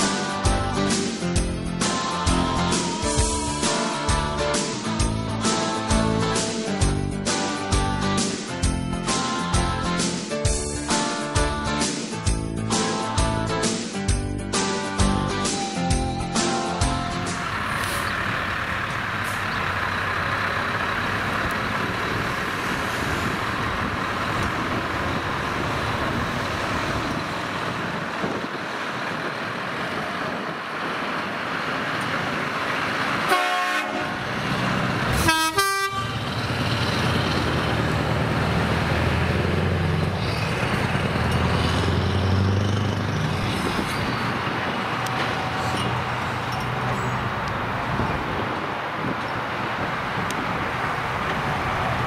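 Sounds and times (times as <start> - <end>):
diesel truck engine driving past: 16.9 - 52.0
truck horn blasts: 33.2 - 34.5, 35.1 - 36.5.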